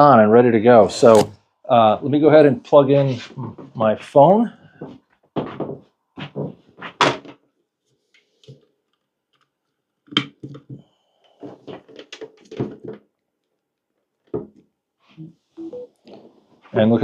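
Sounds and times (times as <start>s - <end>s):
small knocks and rattles on table: 5.2s - 7.4s, 8.1s - 13.2s, 14.1s - 14.7s.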